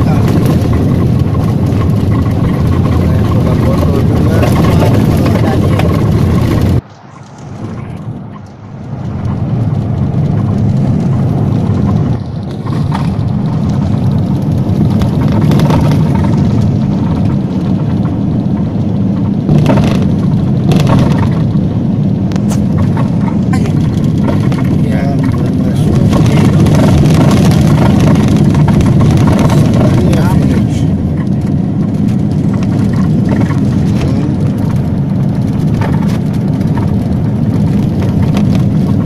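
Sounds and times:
vehicle rumble on dirt road: 0.0 - 39.0.

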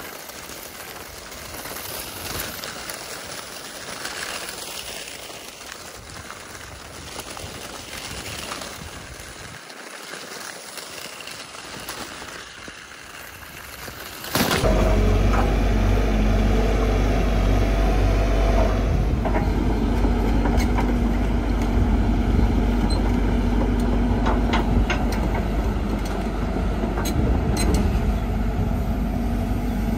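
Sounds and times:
engine-like drone: 14.4 - 29.9.

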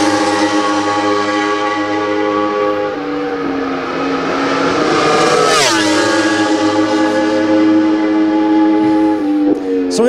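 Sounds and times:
racing motorcycle passing: 0.0 - 9.9.

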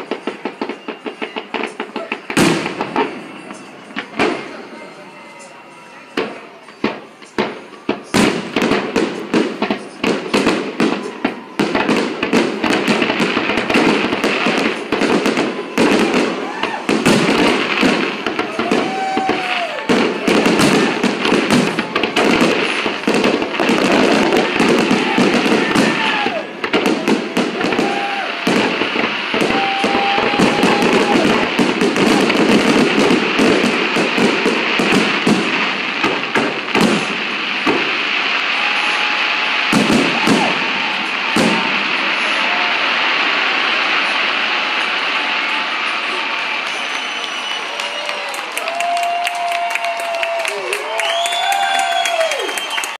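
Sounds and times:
firework crackle: 0.0 - 52.9
firework shells bursting: 6.2 - 49.2.

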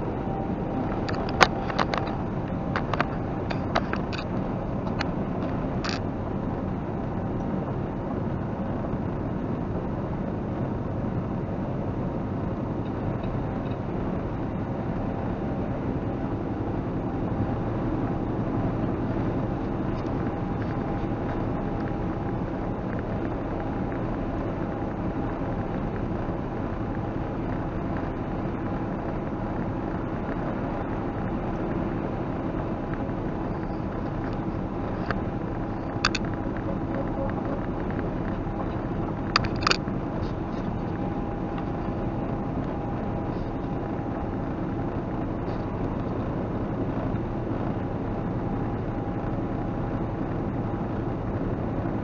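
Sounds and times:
road noise: 0.0 - 52.0
truck engine drone: 0.0 - 52.0.

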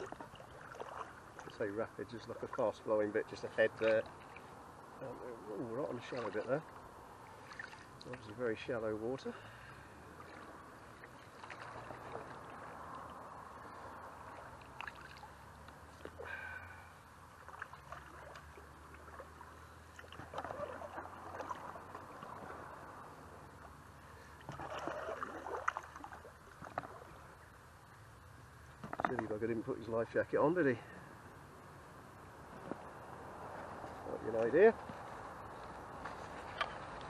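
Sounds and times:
paddle water splashing: 0.0 - 29.6
river water gurgling: 0.0 - 37.0.

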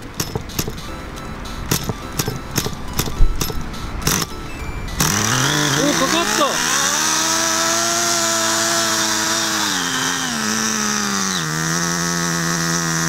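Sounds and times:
small model car engine running: 4.9 - 13.0.

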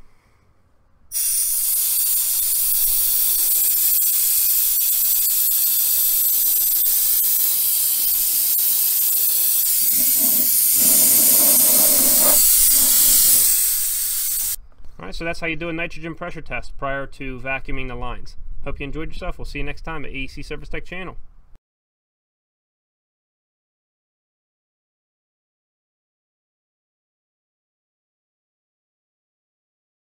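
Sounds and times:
high-pitched gas hiss: 1.1 - 14.6.

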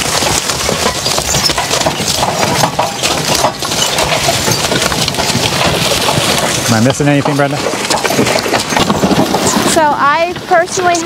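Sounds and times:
plow frame clattering: 0.0 - 11.0
harness chains clinking: 0.5 - 7.2.

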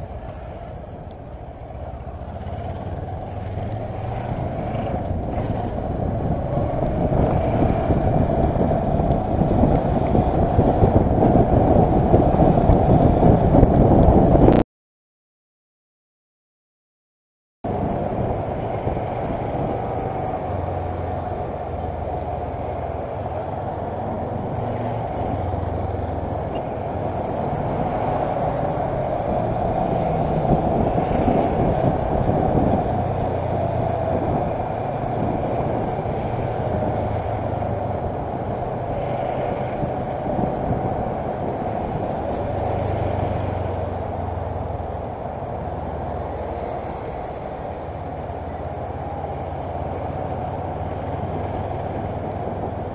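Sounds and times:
road noise rushing: 0.0 - 14.6, 17.6 - 52.9.

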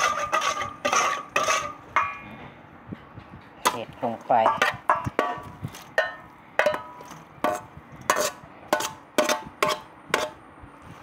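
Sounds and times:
metal mixing bowl clanking: 4.4 - 6.9.

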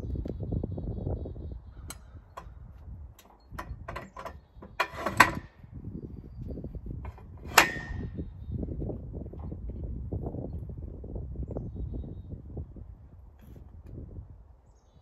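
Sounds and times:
rattling clatter: 3.2 - 5.6, 7.0 - 8.2
sharp metallic clank: 7.1 - 8.2.

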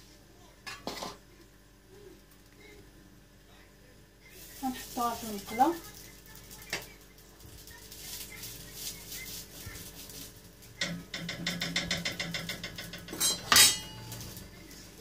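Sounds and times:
patties frying in a pan: 4.2 - 15.0.

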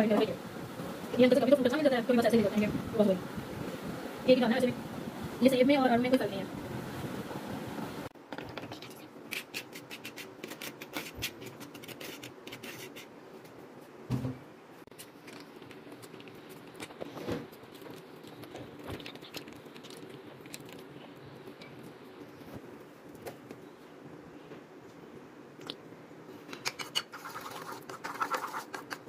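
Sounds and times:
quick clicks and scrapes: 26.5 - 29.0.

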